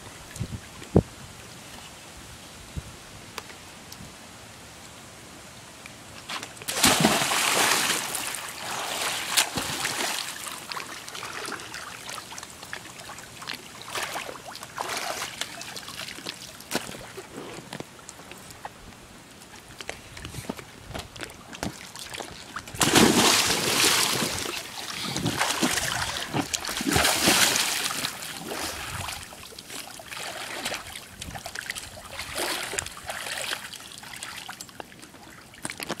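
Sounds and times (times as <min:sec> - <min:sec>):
water sloshing and trickling: 0:06.4 - 0:17.3, 0:21.0 - 0:36.0
child jumping into pool splash: 0:06.7 - 0:10.4, 0:22.8 - 0:28.8.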